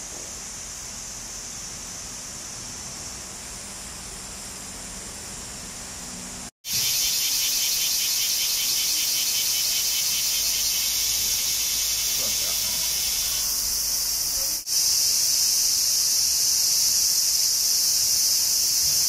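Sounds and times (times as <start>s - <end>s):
cicada pulsing buzz: 0.0s - 19.0s
cicadas hissing: 0.0s - 19.0s.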